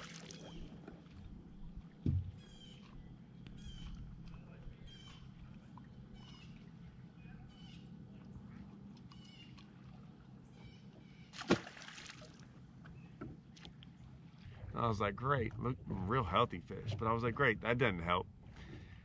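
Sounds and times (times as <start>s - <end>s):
fish splashing into water: 0.0s - 0.7s, 11.3s - 12.5s
bird calling: 2.3s - 11.4s.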